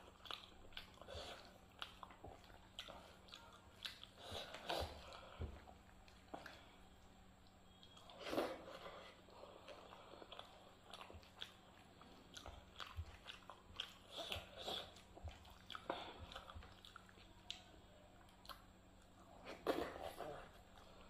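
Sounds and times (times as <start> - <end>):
fingers squishing food: 0.0 - 8.5
chewing and lip-smacking: 0.0 - 21.0.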